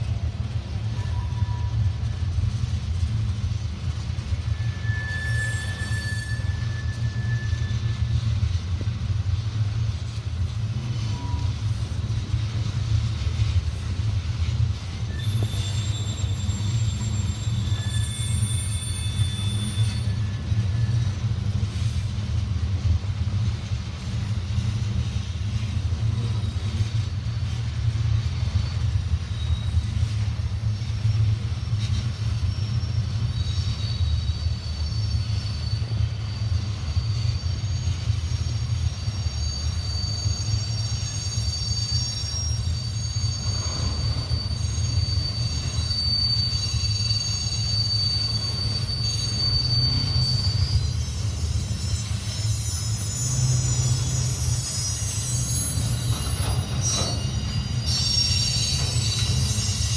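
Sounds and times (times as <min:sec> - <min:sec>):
freight train rumbling past: 0:00.0 - 0:59.9
high-pitched squeal: 0:04.5 - 0:08.5, 0:14.9 - 0:22.0, 0:25.5 - 0:59.9.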